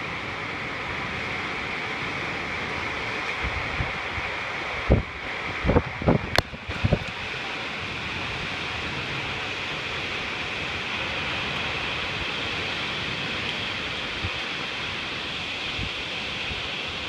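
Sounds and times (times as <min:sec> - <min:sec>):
heavy rain pouring: 0:00.0 - 0:17.0
strong wind: 0:00.0 - 0:17.0.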